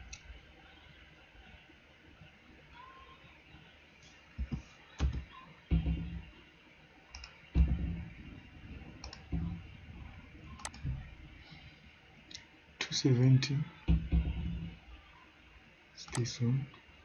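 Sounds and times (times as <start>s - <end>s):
computer mouse clicking: 7.1s - 7.4s, 9.0s - 9.3s, 10.6s - 10.8s.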